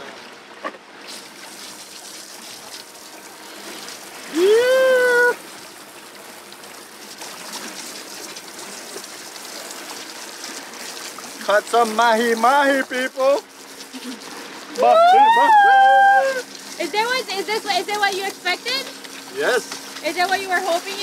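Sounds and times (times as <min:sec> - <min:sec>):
hose water trickling: 0:00.0 - 0:21.0
person voicing a rising note: 0:04.3 - 0:05.4, 0:14.8 - 0:16.4.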